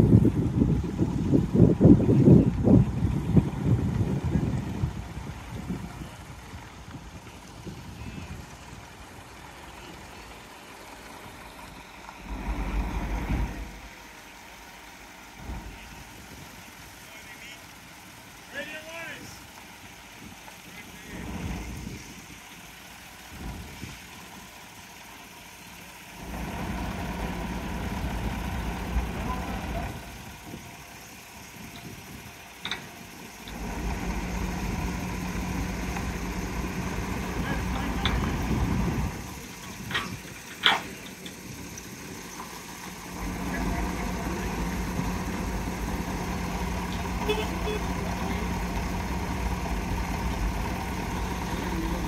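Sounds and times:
diesel truck engine idling: 0.0 - 52.0
loud low rumble: 11.3 - 14.7, 15.4 - 16.4.

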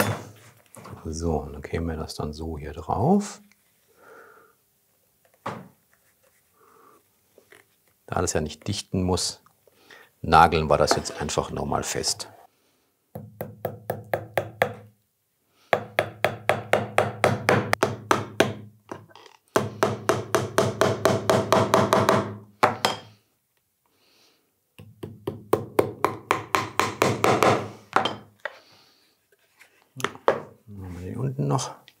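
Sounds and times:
hammer tapping nails: 13.2 - 14.9, 15.8 - 18.7, 19.5 - 23.1, 24.8 - 28.2.

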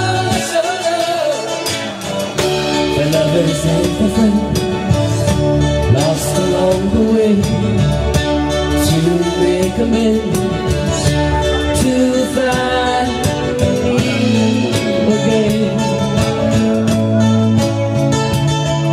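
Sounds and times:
electric guitar or bass: 0.0 - 18.9
strummed acoustic guitar: 0.0 - 18.9
women singing: 11.7 - 16.3.

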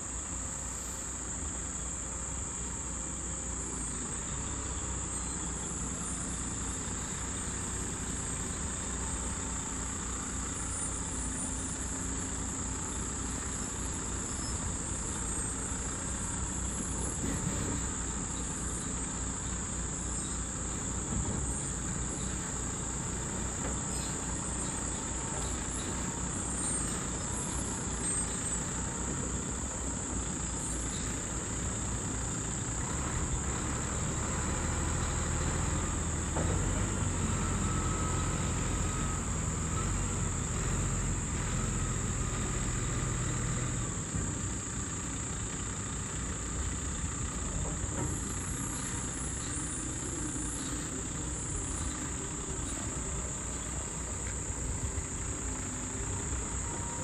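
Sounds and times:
diesel truck engine at low revs: 0.0 - 57.0
high shrill of insects: 0.1 - 33.0.

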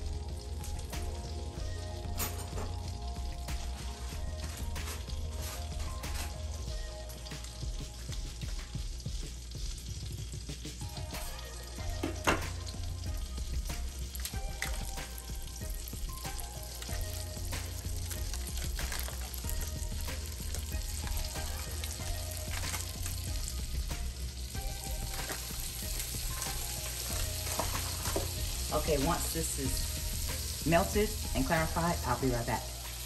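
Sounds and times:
butter sizzling in a pot: 0.0 - 33.0.

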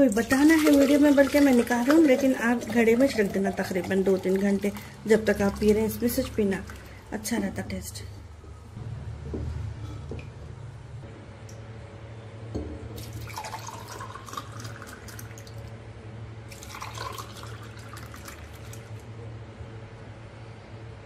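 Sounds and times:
milk pouring into glasses: 0.1 - 7.1, 13.0 - 15.7, 16.5 - 19.0.

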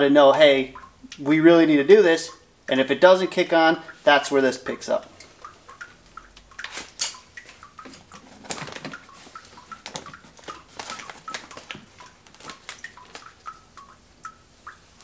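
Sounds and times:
plastic plugs clicking and rustling: 6.3 - 13.4.

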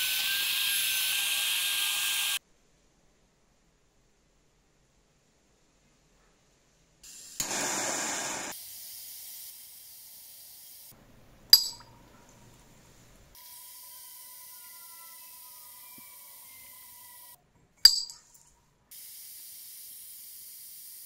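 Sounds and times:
gas torch flame hissing: 0.0 - 2.4, 7.0 - 11.0, 18.9 - 21.0.

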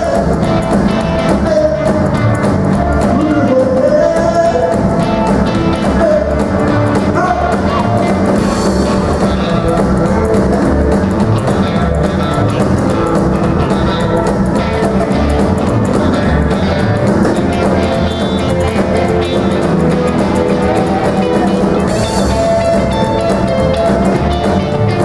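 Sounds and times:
male lead singer: 0.0 - 11.3
live rock and roll band: 0.0 - 25.0
upright bass slapping: 0.0 - 25.0.

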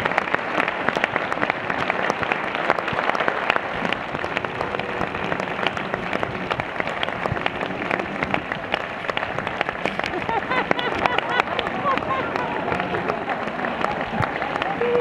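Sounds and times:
audience applauding: 0.0 - 15.0.

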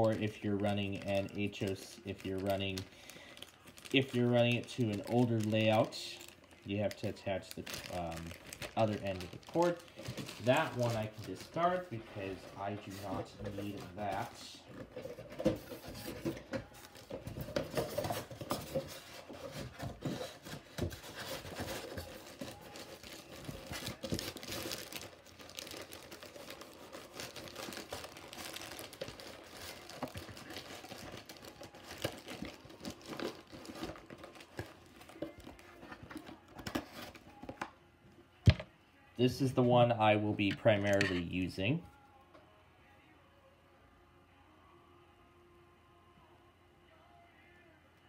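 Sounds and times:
packaging crinkling: 0.0 - 37.7.

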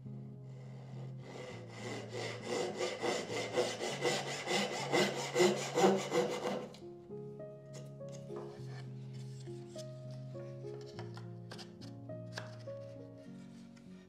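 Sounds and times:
handsaw cutting wood: 0.6 - 6.8.

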